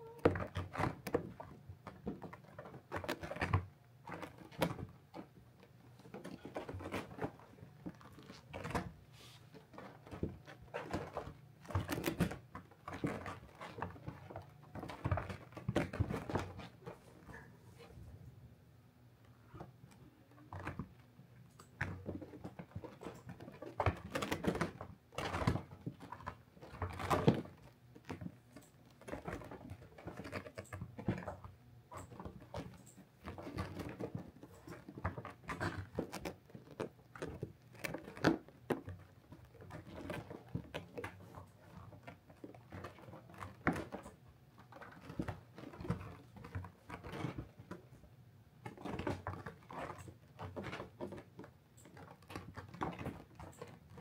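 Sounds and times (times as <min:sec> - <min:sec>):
kittens scratching and rustling: 0:00.0 - 0:18.4, 0:19.2 - 0:54.0.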